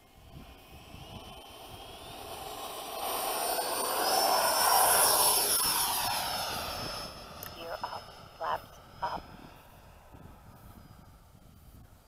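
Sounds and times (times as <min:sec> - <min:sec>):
rush of air: 0:00.0 - 0:07.7
ducted fan jet whine: 0:00.0 - 0:12.0.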